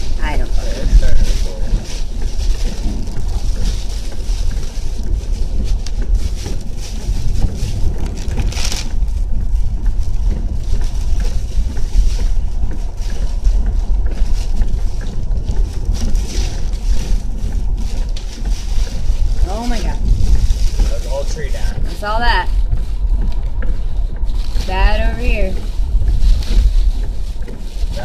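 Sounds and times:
wind and rain buffeting car: 0:00.0 - 0:28.0.

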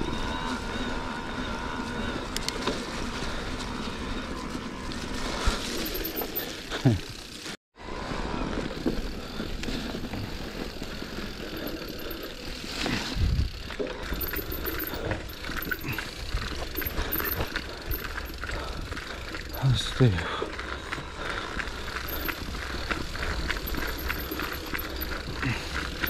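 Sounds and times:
bike tyres rushing on trail: 0:00.0 - 0:26.0
bike rattling and knocking: 0:08.8 - 0:26.0.

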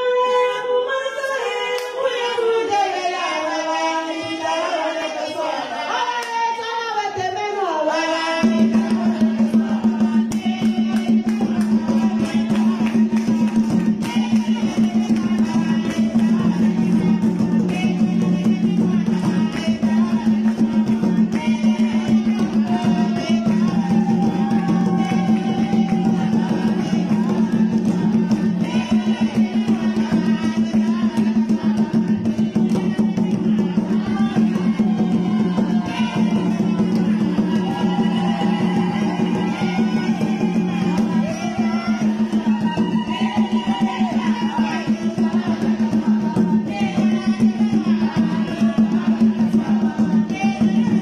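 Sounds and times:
voices singing together: 0:00.0 - 0:51.0
dance music with fast drum beat: 0:08.5 - 0:51.0
loud dance music: 0:33.1 - 0:48.4.

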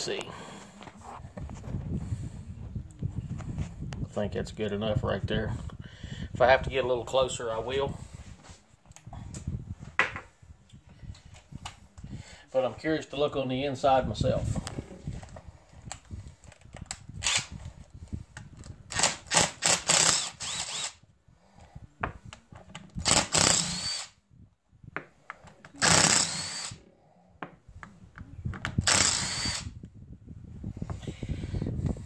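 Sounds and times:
impact driver whining: 0:18.9 - 0:21.0, 0:22.9 - 0:24.2, 0:25.8 - 0:26.8, 0:28.7 - 0:29.8.

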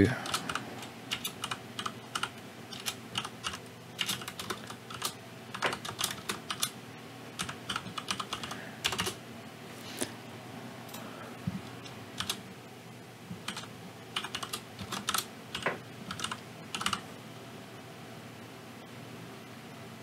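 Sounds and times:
keyboard typing clicks: 0:00.2 - 0:06.7, 0:07.4 - 0:09.2, 0:12.2 - 0:12.4, 0:13.4 - 0:17.0.

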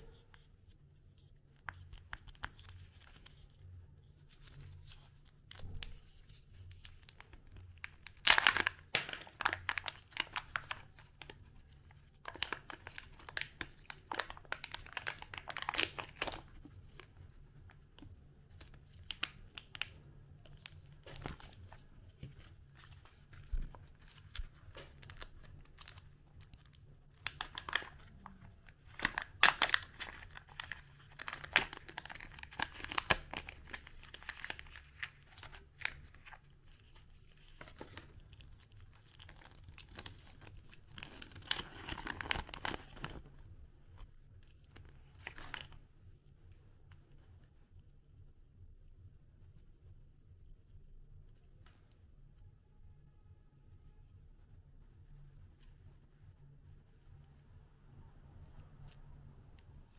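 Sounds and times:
foil wrapper crinkling: 0:06.8 - 0:17.1, 0:23.4 - 0:43.3
paper and plastic bag rustling: 0:27.2 - 0:43.3.

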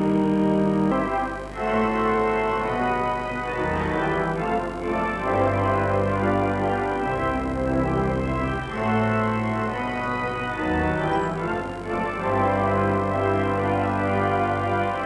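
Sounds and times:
church organ playing chords: 0:00.0 - 0:15.0.

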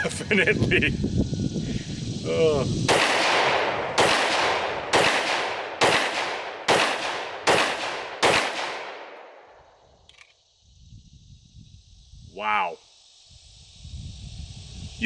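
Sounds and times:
pistol shots echoing: 0:02.9 - 0:09.4
faint click: 0:10.0 - 0:10.4.

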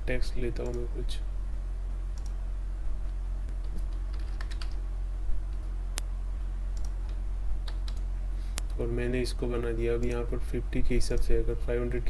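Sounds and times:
low hum: 0:00.0 - 0:12.0
keyboard keystrokes: 0:03.6 - 0:04.8.

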